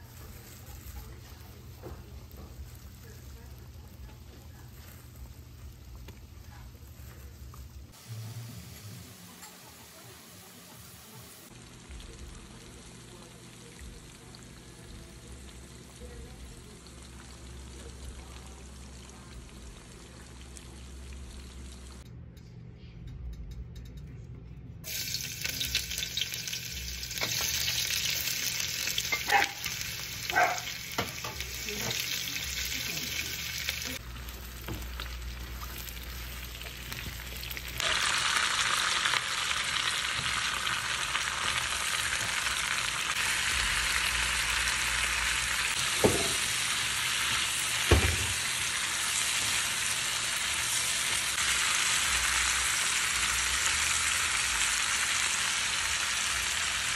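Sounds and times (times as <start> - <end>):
loud sizzle in hot oil: 0.0 - 22.0, 24.9 - 56.9
oil bubbling while deep-frying: 11.4 - 22.0, 24.8 - 56.9.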